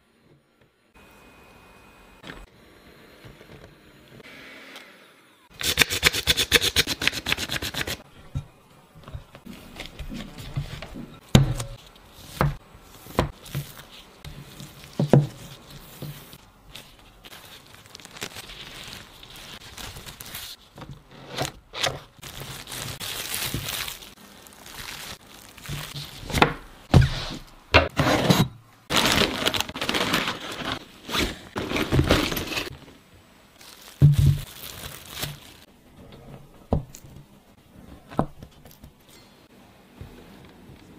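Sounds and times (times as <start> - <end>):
cling film crinkling: 13.4 - 20.9, 22.0 - 26.4, 28.9 - 32.7, 33.6 - 35.7.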